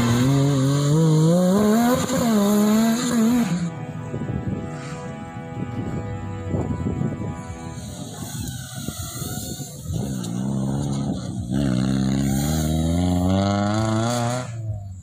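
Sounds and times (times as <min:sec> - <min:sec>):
engine revving hard: 0:00.0 - 0:03.7, 0:07.8 - 0:14.9.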